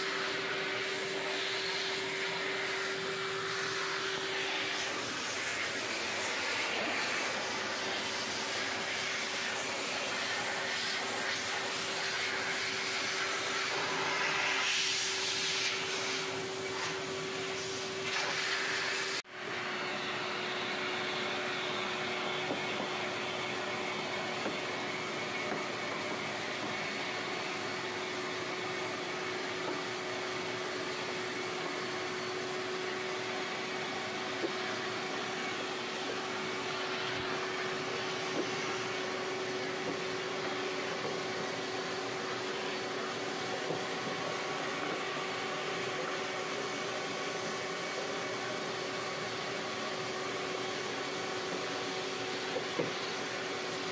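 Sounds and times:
vacuum cleaner running: 0.0 - 53.9.

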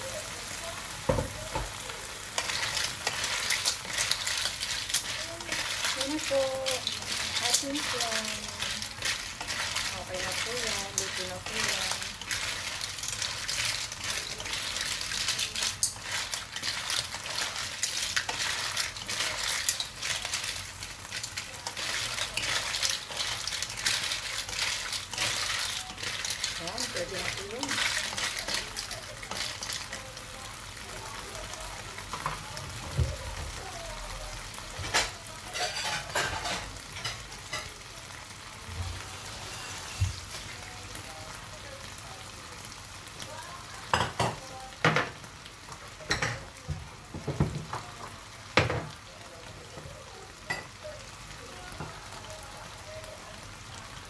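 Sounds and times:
cooking liquid hissing: 0.0 - 54.0
clam shells clattering in a wok: 1.5 - 30.2, 34.8 - 37.7.

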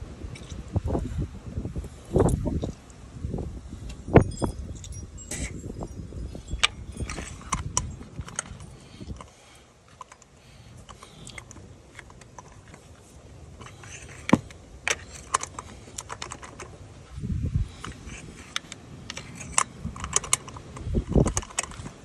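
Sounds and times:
hard parts clicking and tapping: 3.9 - 16.8, 17.7 - 22.0.

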